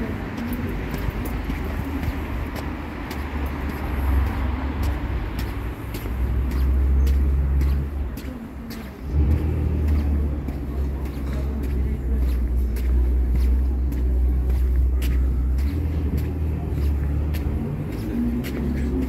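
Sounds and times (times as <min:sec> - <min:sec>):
footsteps on paved street: 0:00.0 - 0:19.0.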